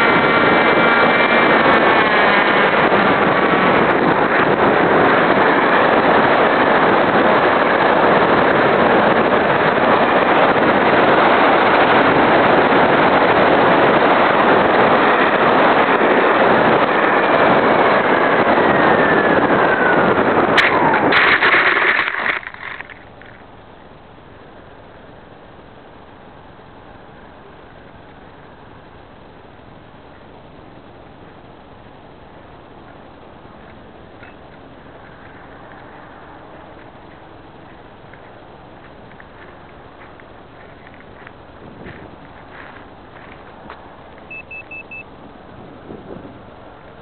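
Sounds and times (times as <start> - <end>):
knocks and rustles in dry brush: 36.8 - 44.3.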